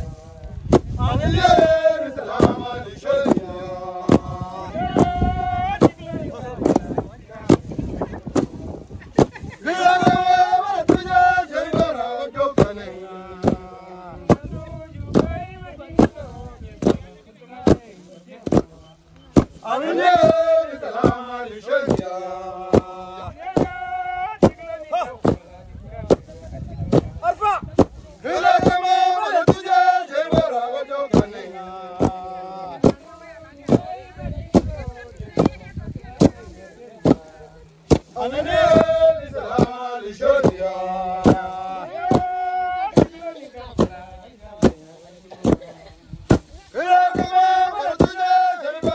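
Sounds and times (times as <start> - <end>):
threshing sticks thudding on grain: 0.0 - 48.9
wooden flails whacking ground: 0.7 - 5.2
men chanting together: 1.0 - 7.6, 9.6 - 15.4, 19.4 - 25.1, 28.2 - 33.0, 37.9 - 44.4, 46.7 - 48.9.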